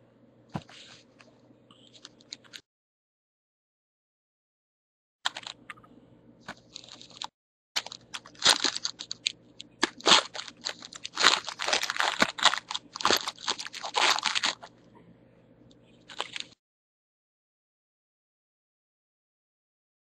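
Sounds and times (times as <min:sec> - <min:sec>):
card pack wrappers crinkling: 0:05.3 - 0:05.6, 0:06.5 - 0:14.7, 0:16.1 - 0:16.6.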